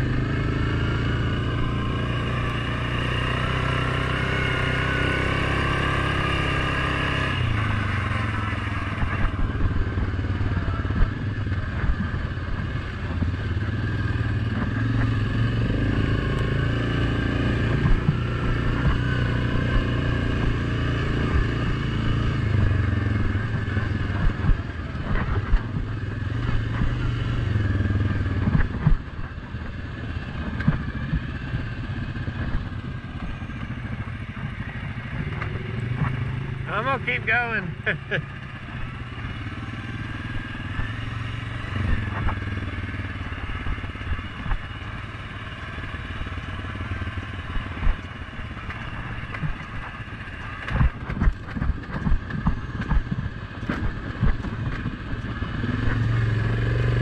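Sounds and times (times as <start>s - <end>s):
quad bike engine running: 0.0s - 57.0s
knocks and rattles: 21.2s - 27.1s, 27.9s - 36.6s, 47.5s - 56.0s.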